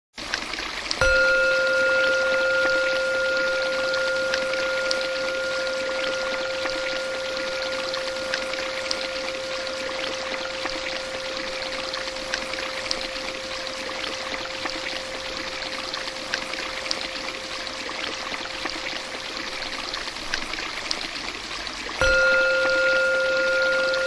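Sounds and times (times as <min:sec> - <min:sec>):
water trickling and splashing: 0:00.2 - 0:24.0
loud steady tone: 0:01.0 - 0:16.7, 0:22.0 - 0:24.0.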